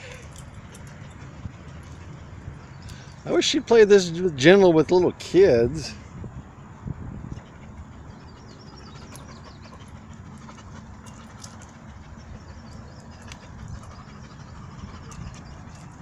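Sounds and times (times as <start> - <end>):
steady low rumble: 5.8 - 16.0.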